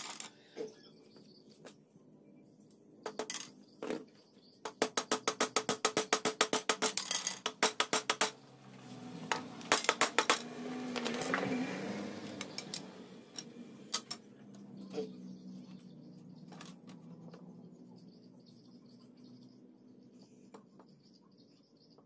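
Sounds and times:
wooden slats knocking: 0:04.6 - 0:08.4, 0:09.2 - 0:11.5
hammer driving nails into wood: 0:04.7 - 0:08.4, 0:09.3 - 0:11.4.

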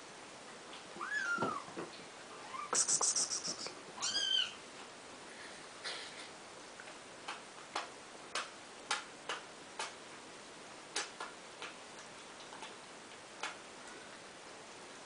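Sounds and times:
kittens lapping milk: 0:11.0 - 0:14.2.

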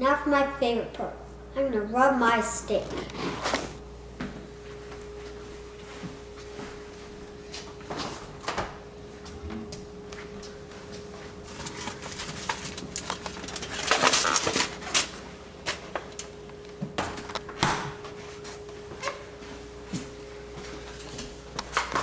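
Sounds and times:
steady hum: 0:00.0 - 0:22.0
aluminium foil crinkling: 0:11.4 - 0:16.3
refrigerator door opening: 0:11.6 - 0:15.2.

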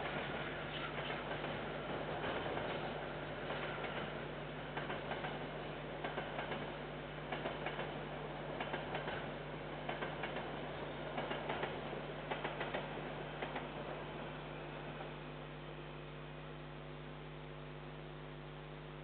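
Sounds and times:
wheels clicking over rail joints: 0:00.0 - 0:08.0, 0:08.6 - 0:13.7.

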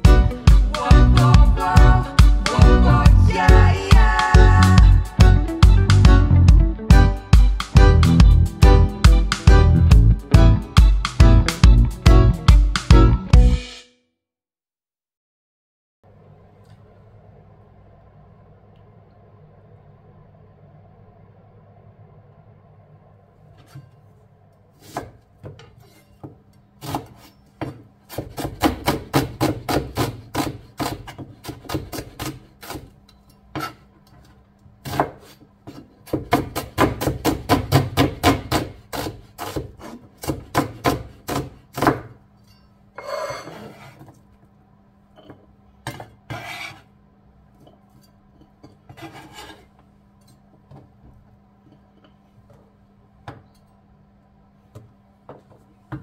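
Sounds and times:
knife scraping: 0:23.6 - 0:24.1, 0:24.8 - 0:28.5, 0:30.0 - 0:36.1, 0:38.9 - 0:40.4, 0:42.4 - 0:44.2, 0:45.9 - 0:47.0, 0:47.9 - 0:50.4
knife chopping on wooden board: 0:24.8 - 0:33.8, 0:34.8 - 0:42.2.

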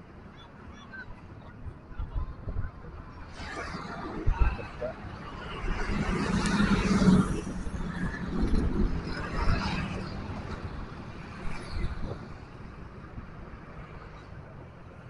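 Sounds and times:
low steady traffic noise: 0:00.0 - 0:15.0
motorbikes passing: 0:03.0 - 0:14.2.

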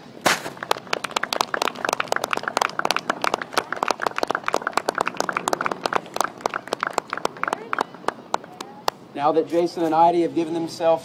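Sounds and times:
crowd applauding: 0:00.6 - 0:08.8.

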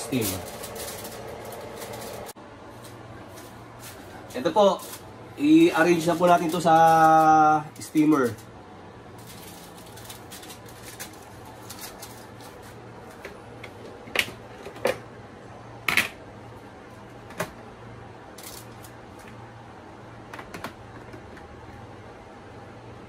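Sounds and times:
foil rustling: 0:00.0 - 0:08.5, 0:09.1 - 0:13.2, 0:18.4 - 0:19.2.

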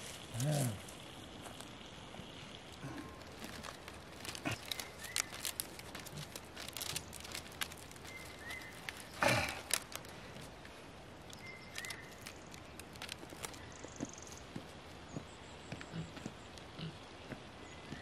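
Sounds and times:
plant stalks rustling and crackling: 0:00.0 - 0:15.0
stalks crunching: 0:02.6 - 0:14.5.

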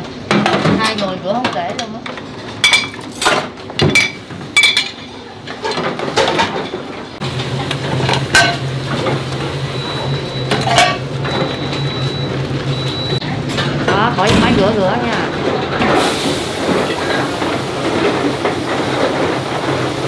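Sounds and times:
steel dishes clinking and clattering: 0:02.6 - 0:06.8, 0:10.5 - 0:11.4.

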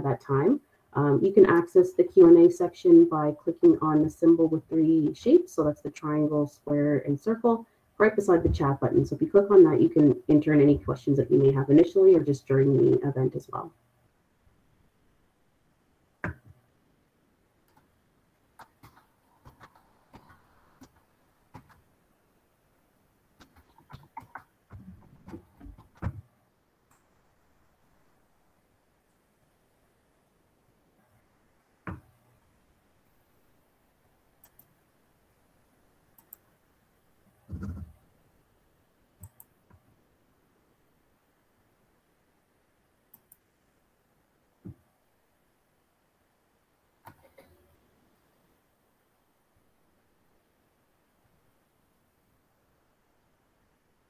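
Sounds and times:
faint irregular clicks and taps: 0:16.2 - 0:16.6, 0:17.6 - 0:17.9, 0:18.5 - 0:21.9, 0:23.4 - 0:27.1, 0:31.8 - 0:32.2, 0:34.4 - 0:34.8, 0:36.1 - 0:36.5, 0:39.2 - 0:40.0, 0:43.1 - 0:43.5, 0:44.6 - 0:44.9, 0:47.0 - 0:47.6
computer mouse clicks: 0:18.6 - 0:21.8, 0:34.4 - 0:34.7, 0:36.2 - 0:36.4, 0:39.2 - 0:39.8, 0:43.1 - 0:43.4, 0:47.0 - 0:47.6.

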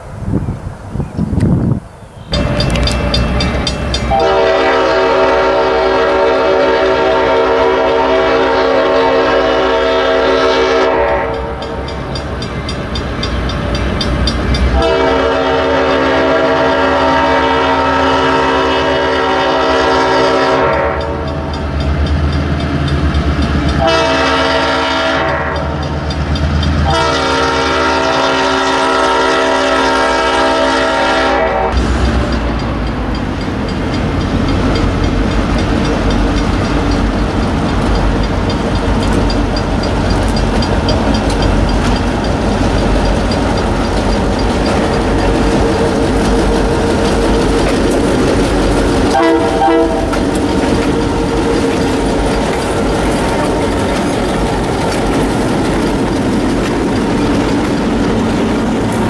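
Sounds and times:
locomotive multi-chime horn: 0:02.3 - 0:35.2, 0:37.7 - 0:54.9
locomotive diesel engine running: 0:31.8 - 0:59.0.

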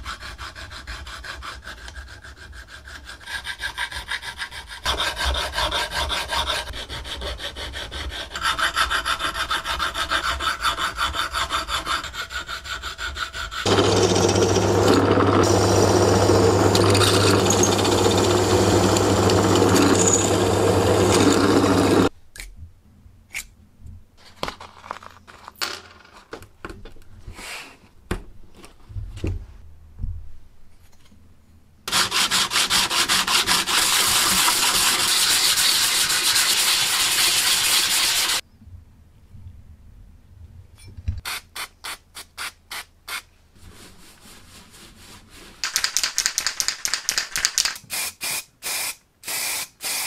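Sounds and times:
power tool grinding metal: 0:13.6 - 0:22.1, 0:31.9 - 0:38.4
metal plate scraping on sandpaper: 0:31.9 - 0:38.4
sandpaper rustling and tapping: 0:43.8 - 0:47.8.

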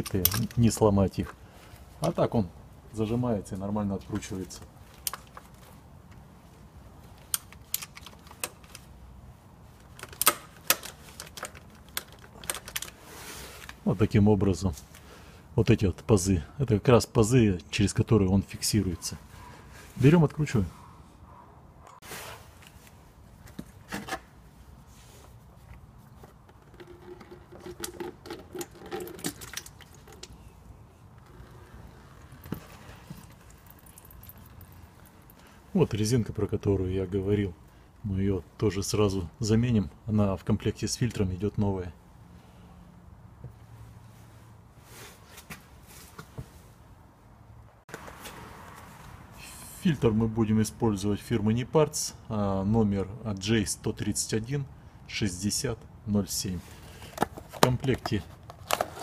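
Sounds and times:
cap unscrewing clicks and rubbing: 0:26.4 - 0:30.4.

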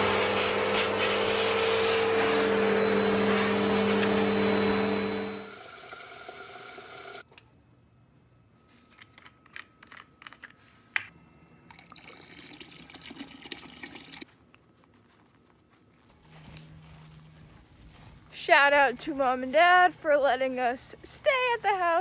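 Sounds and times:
vacuum cleaner humming: 0:00.0 - 0:07.2
liquid pouring into plastic bucket: 0:11.7 - 0:14.2.

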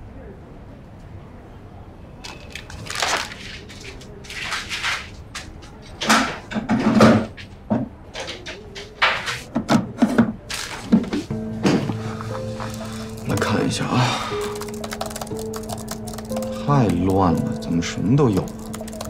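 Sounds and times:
furniture knocks and scuffs: 0:09.5 - 0:12.2
footsteps: 0:10.5 - 0:17.4.

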